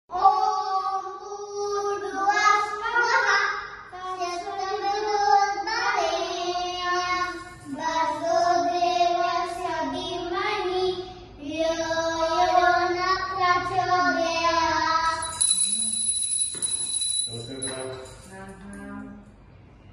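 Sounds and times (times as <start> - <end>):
children singing a hymn: 4.0 - 15.2
high steady ringing tone: 15.0 - 19.0.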